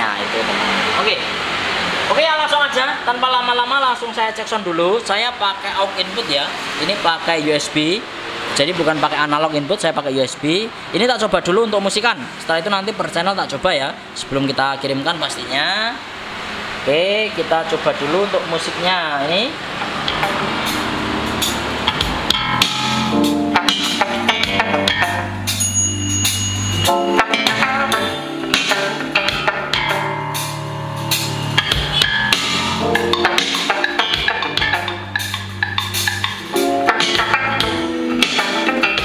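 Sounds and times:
song with drums and bass: 19.8s - 39.0s.

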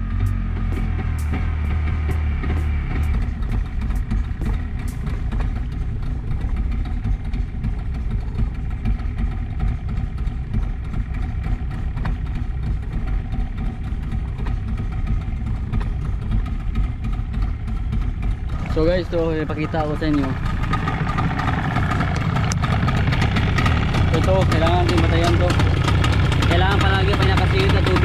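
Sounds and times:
outboard motor idling: 0.0s - 28.0s.

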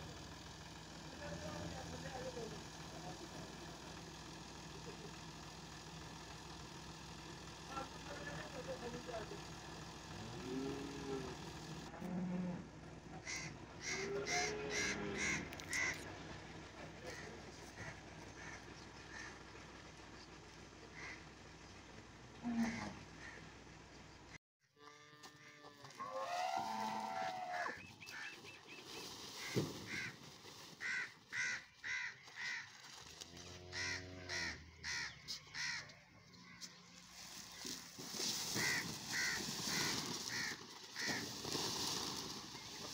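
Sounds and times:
crow cawing: 13.2s - 16.1s, 17.1s - 19.4s, 20.9s - 21.2s, 22.6s - 23.4s, 27.2s - 28.4s, 29.4s - 30.2s, 30.8s - 32.8s, 33.7s - 36.6s, 38.5s - 41.4s
goat bleating: 13.8s - 16.0s.

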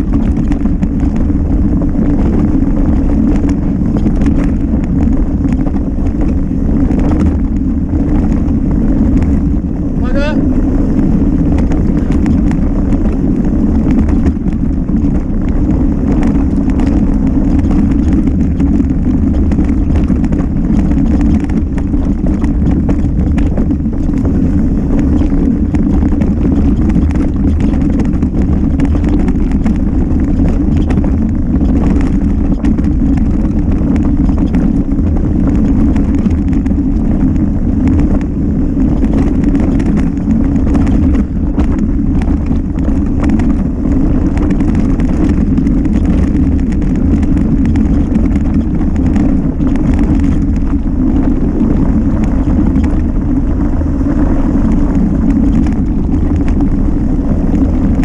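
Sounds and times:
bike rattling and knocking: 0.0s - 58.0s
wind rush on microphone: 0.0s - 58.0s.

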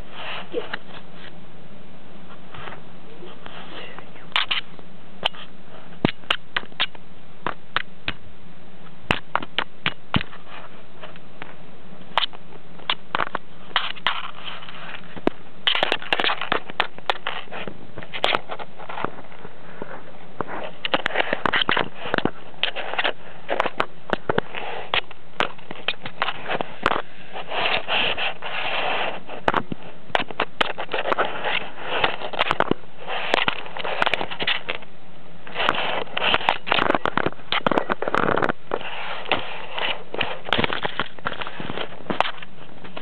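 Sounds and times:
fur brushing against microphone: 0.0s - 1.3s, 25.7s - 30.0s, 38.7s - 43.0s
steady hiss: 0.0s - 43.0s.

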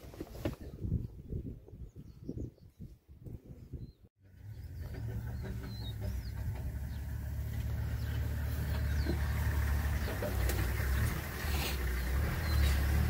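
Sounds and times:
bird chirps: 3.8s - 13.0s
vehicle engine idling: 4.2s - 13.0s.

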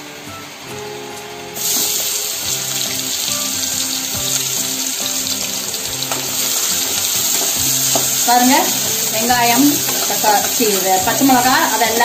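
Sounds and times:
background music: 0.0s - 12.0s
onion sizzling in hot oil: 0.4s - 12.0s.

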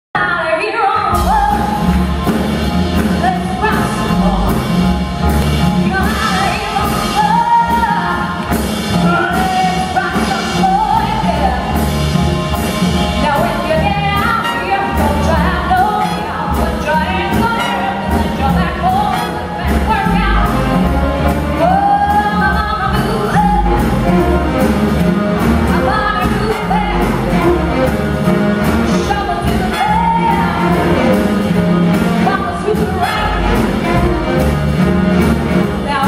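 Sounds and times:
drums and cymbals: 1.0s - 36.0s
upright bass: 1.1s - 36.0s
woman singing into microphone: 5.8s - 11.7s, 13.2s - 20.6s, 21.6s - 23.9s, 25.7s - 27.4s, 28.9s - 31.0s.

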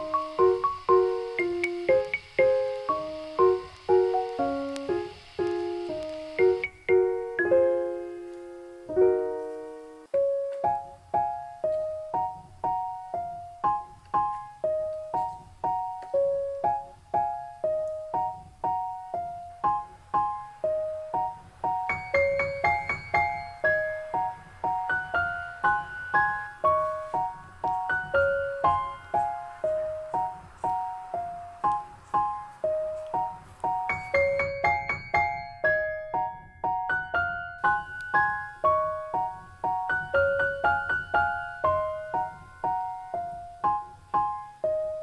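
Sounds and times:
gentle piano melody: 0.0s - 45.0s.

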